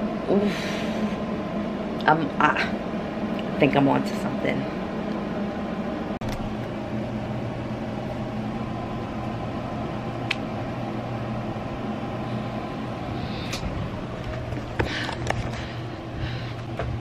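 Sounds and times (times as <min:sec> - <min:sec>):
mechanical room hum with hiss: 0:00.0 - 0:17.0.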